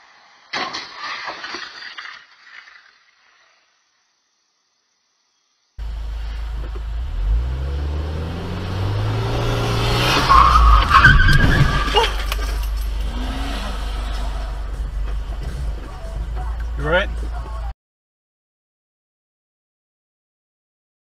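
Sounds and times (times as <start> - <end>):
car engine rumble inside cabin: 5.8 - 17.7
tyres squealing: 8.1 - 17.7.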